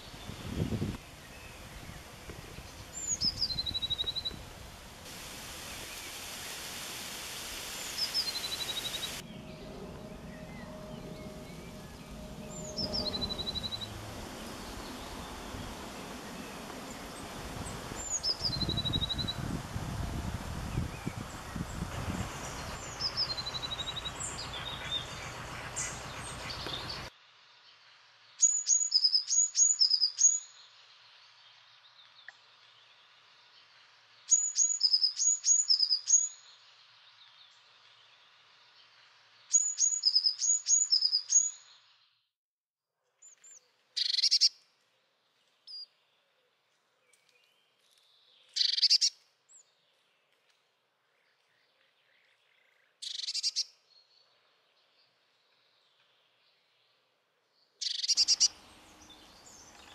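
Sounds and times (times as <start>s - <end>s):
outdoor rustling: 0.0s - 28.3s, 43.0s - 53.4s, 57.8s - 59.9s
songbird singing high notes: 8.0s - 17.1s, 57.8s - 59.8s
harsh bird calls: 21.1s - 27.1s, 57.8s - 59.9s.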